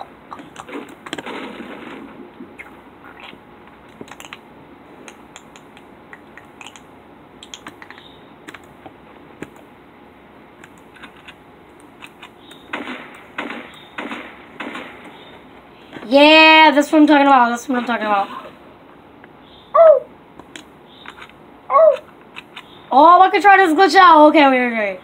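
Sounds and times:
game controls clicking: 0:00.0 - 0:01.4, 0:02.6 - 0:04.4, 0:05.0 - 0:09.7, 0:10.6 - 0:15.4, 0:20.4 - 0:22.8.

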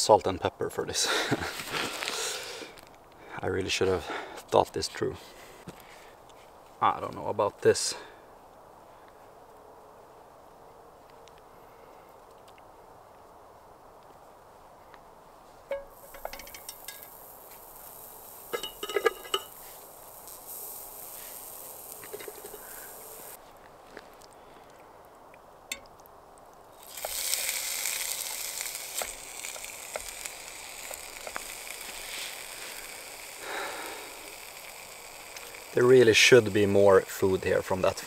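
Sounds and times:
clinks: 0:15.7 - 0:17.1, 0:18.5 - 0:19.6, 0:25.7 - 0:25.9
food sizzling in a frying pan: 0:15.7 - 0:23.4, 0:26.8 - 0:38.0.

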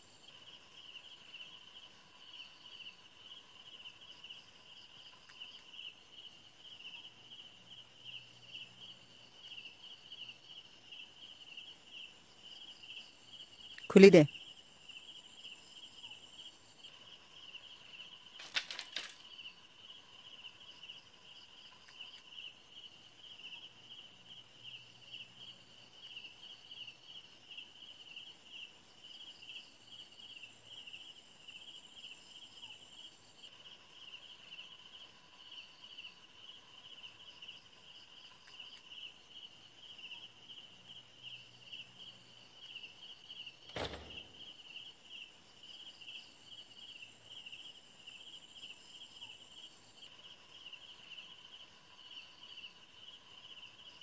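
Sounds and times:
crickets chirping: 0:00.0 - 0:54.0
brief knock: 0:43.7 - 0:44.4.

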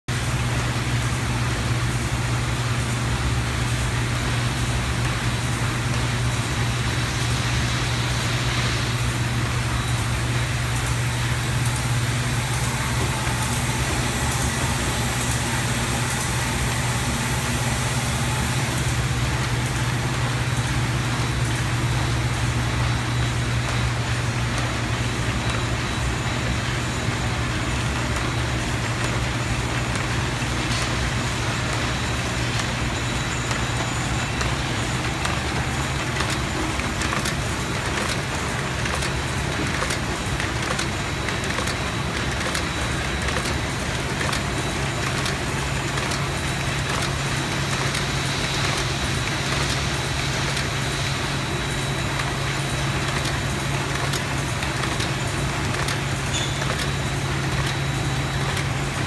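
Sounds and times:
paper-folding machine humming: 0:00.1 - 0:59.0.

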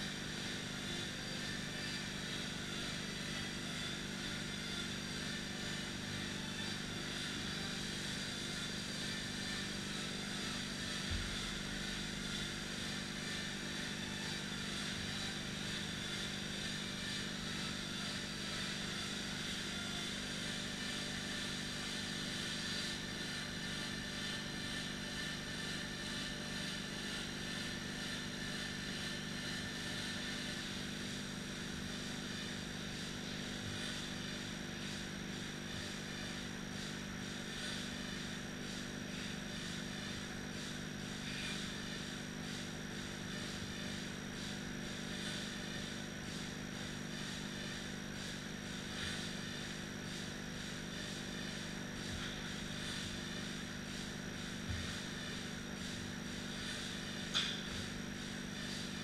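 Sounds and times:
steady mechanical drone: 0:00.0 - 0:59.0.

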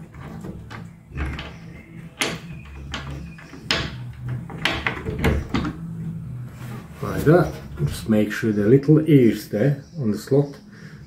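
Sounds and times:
metal bracket clicking and knocking: 0:00.0 - 0:05.8.

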